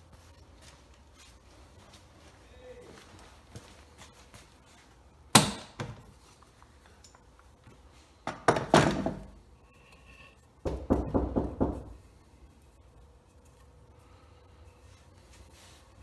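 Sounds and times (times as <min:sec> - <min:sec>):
wood knocking on workbench: 0:10.7 - 0:11.9.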